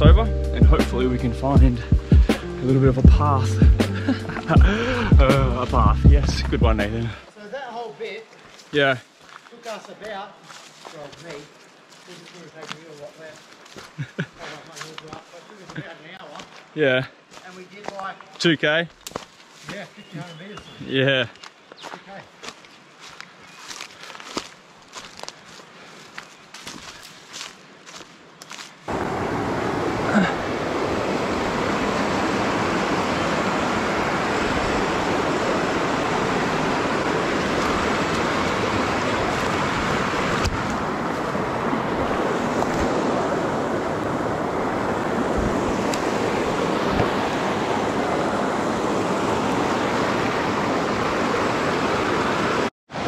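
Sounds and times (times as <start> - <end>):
faint footsteps: 8.3 - 28.8
river water rushing over rocks: 28.9 - 53.0.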